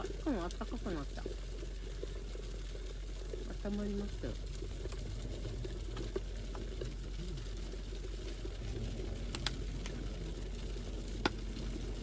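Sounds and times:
water boiling with bubbling hiss: 0.0s - 12.0s
faint clicks: 4.3s - 12.0s.

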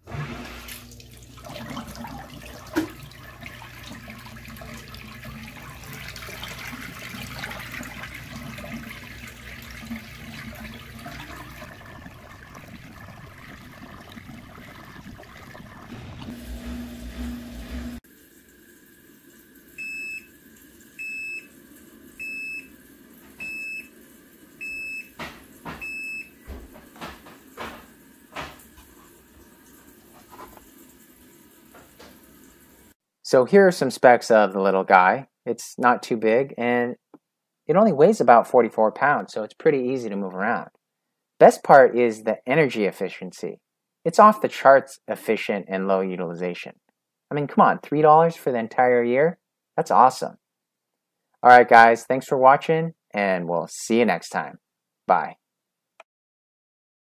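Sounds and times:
washer hum: 0.0s - 33.0s
water pouring into sink: 0.0s - 33.0s.

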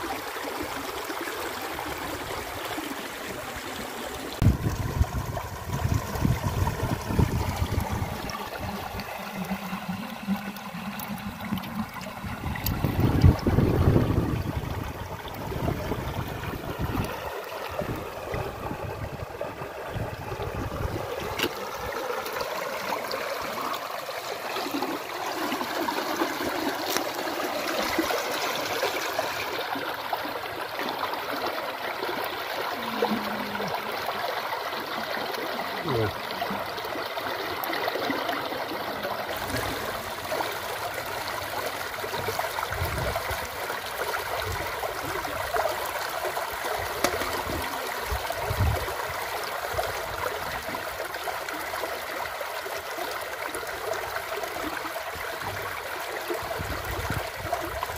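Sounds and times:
shallow water splashing: 4.4s - 31.4s, 38.9s - 45.8s.

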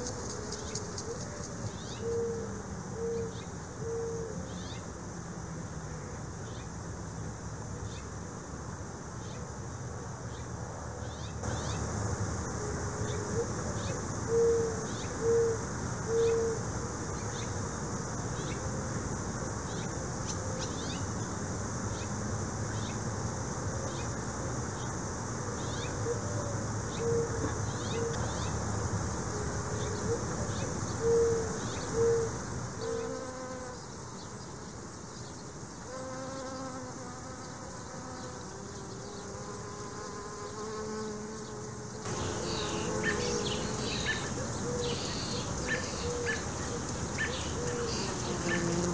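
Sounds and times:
insects buzzing: 0.0s - 48.9s
bird hooting calls: 2.0s - 4.4s, 13.0s - 16.6s, 26.9s - 28.4s, 29.8s - 33.1s, 42.1s - 48.8s.

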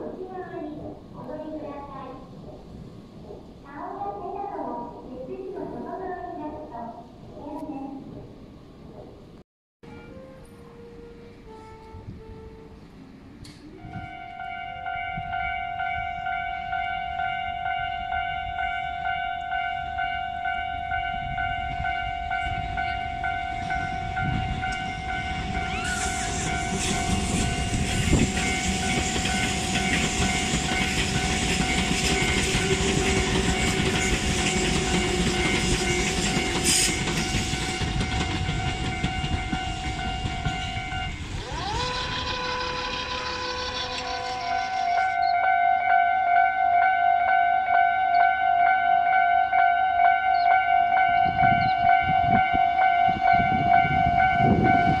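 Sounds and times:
train wheels on rails: 0.0s - 6.1s, 13.4s - 45.6s.

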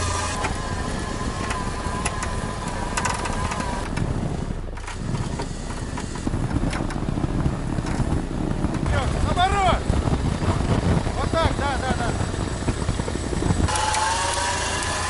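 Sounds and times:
thin high whine: 0.0s - 3.9s, 11.2s - 15.0s
engine running: 0.0s - 15.0s.

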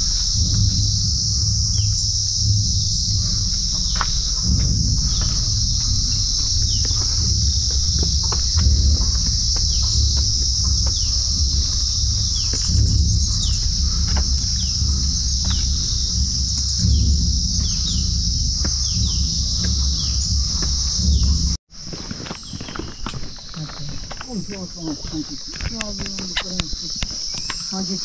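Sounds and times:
bird chirping: 0.0s - 21.5s, 22.4s - 28.0s
low rumble: 0.0s - 21.6s
insects droning: 0.0s - 28.0s.

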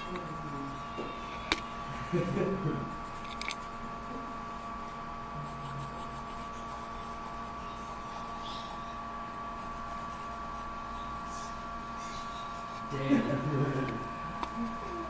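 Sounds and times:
pen scratching on paper: 0.0s - 4.4s, 5.4s - 14.1s
electrical hum with high whine: 0.0s - 15.0s.

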